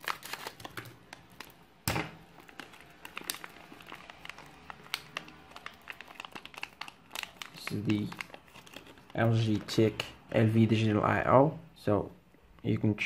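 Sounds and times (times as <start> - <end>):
plastic bag crinkling: 0.0 - 10.1.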